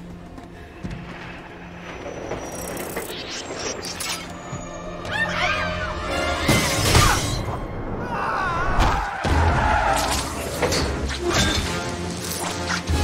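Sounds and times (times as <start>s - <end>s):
orchestral score: 4.2s - 13.0s.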